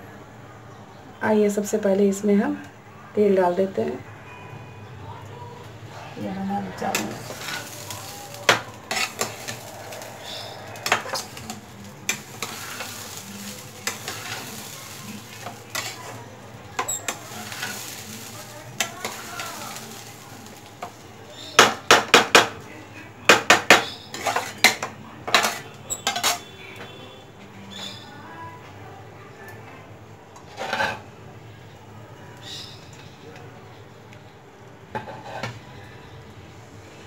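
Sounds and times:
faint sizzle: 0:00.0 - 0:37.0
spatula scraping a pan: 0:06.8 - 0:22.2, 0:23.5 - 0:26.5, 0:30.4 - 0:31.1, 0:34.9 - 0:35.6.

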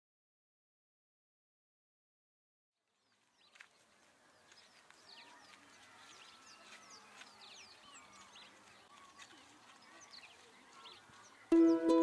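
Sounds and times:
birds chirping and calling: 0:03.4 - 0:12.0.

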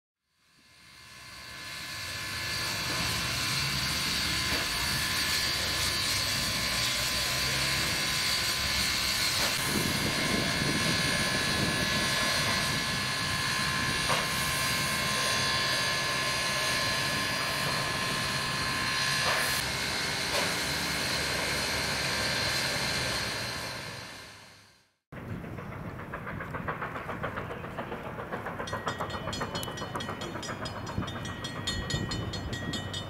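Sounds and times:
steam hissing: 0:00.4 - 0:24.6
constant whine: 0:00.4 - 0:33.0.

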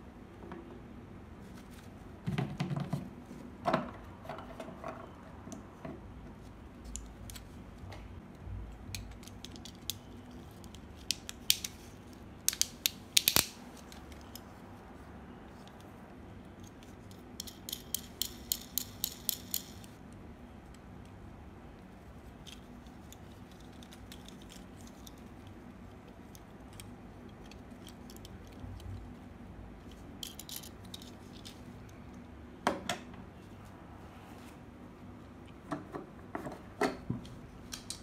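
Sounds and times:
rapid ratchet-like clicks: 0:17.1 - 0:20.0.

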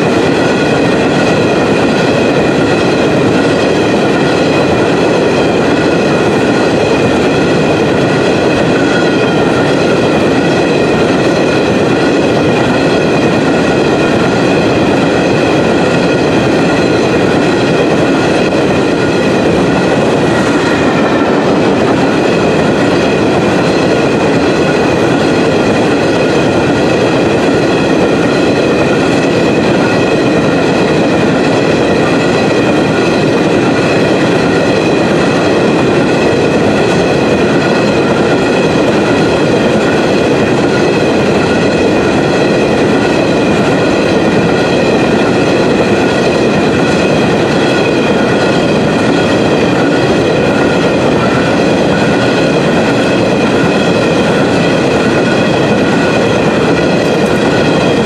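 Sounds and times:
steel train wheels rumbling: 0:00.0 - 0:58.0.

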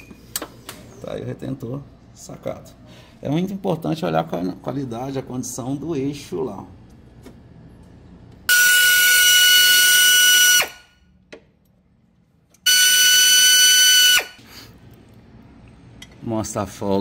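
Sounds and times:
power tool whining: 0:08.5 - 0:10.9, 0:12.6 - 0:14.4.

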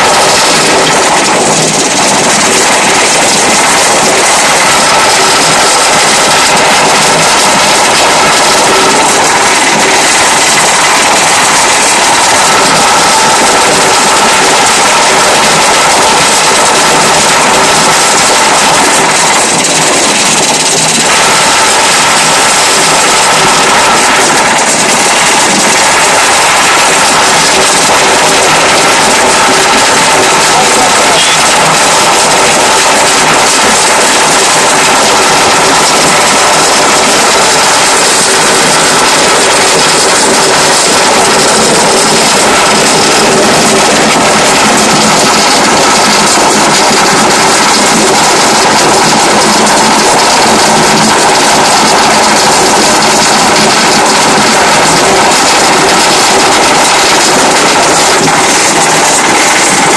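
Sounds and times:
machine whining tones: 0:00.0 - 0:53.3
sugarcane juice crusher whirring: 0:00.0 - 0:59.9.

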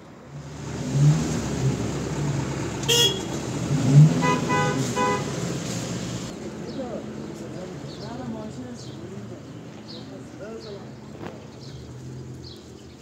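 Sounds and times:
vehicle engine rumbling: 0:00.0 - 0:13.0
car horn toots: 0:02.8 - 0:05.5.

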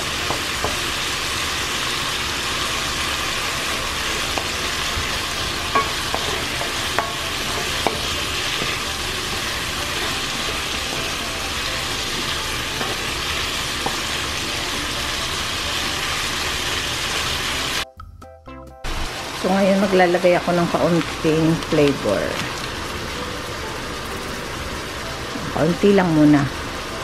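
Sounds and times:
chicken sizzling in oil: 0:00.0 - 0:17.8, 0:18.9 - 0:27.0
wooden spoon knocking pan: 0:04.3 - 0:14.5.

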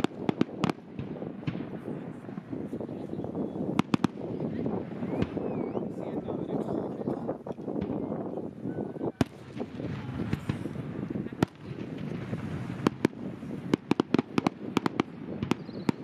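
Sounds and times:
firework bangs: 0:00.0 - 0:05.7, 0:09.2 - 0:16.0.

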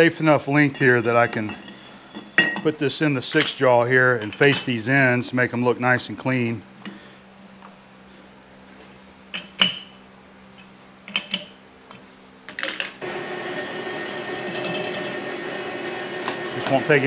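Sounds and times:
lathe running: 0:13.0 - 0:17.0.

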